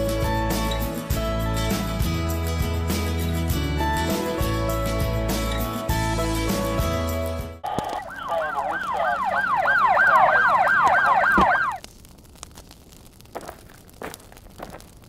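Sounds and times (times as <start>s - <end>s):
fire engine siren yelping: 7.6s - 11.8s.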